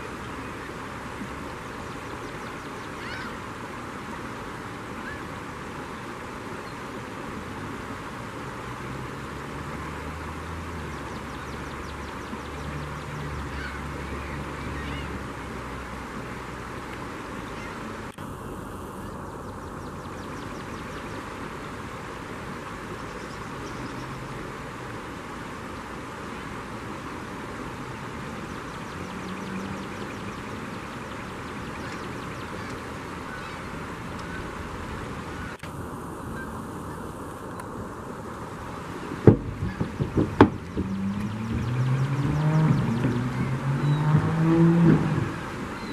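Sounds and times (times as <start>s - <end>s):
gulls calling: 0.0s - 4.3s, 4.9s - 5.5s, 10.8s - 15.9s, 17.3s - 24.4s, 28.3s - 37.2s, 39.0s - 45.9s
river water rushing: 0.0s - 45.9s
faint high bird calls: 1.9s - 3.5s, 10.9s - 15.3s, 17.4s - 17.9s, 28.6s - 34.6s, 45.0s - 45.9s.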